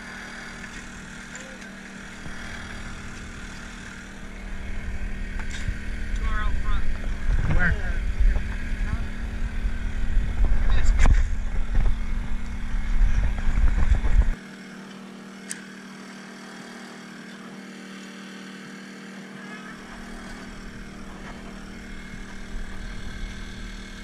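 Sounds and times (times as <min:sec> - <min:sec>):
portable generator humming: 0:00.0 - 0:24.0
loud low rumble: 0:02.0 - 0:14.4.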